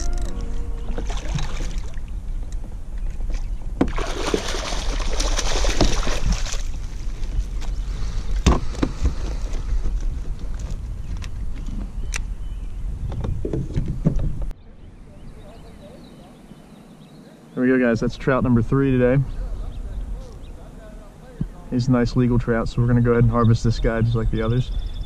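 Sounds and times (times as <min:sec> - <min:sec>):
low rumble: 0:00.0 - 0:03.8
fish splashing in net: 0:03.9 - 0:06.7.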